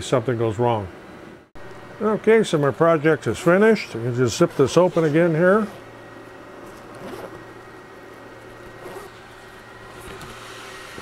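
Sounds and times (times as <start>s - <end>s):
steady low hum: 0.0s - 11.0s
stiff fabric rustling: 6.6s - 7.5s
zipper being pulled open: 6.7s - 7.5s, 8.7s - 9.2s.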